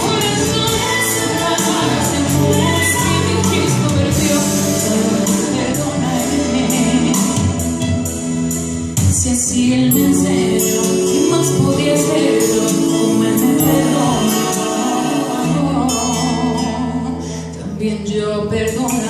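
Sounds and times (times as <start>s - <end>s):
woman singing into a microphone: 0.0s - 8.1s, 9.0s - 19.0s
instrumental accompaniment: 0.0s - 17.6s.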